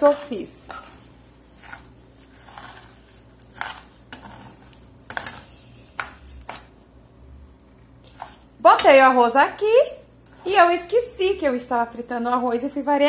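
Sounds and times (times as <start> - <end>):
metal spoon scraping saucepan: 0.0 - 6.7, 8.0 - 9.1
faint sizzle: 0.0 - 13.0.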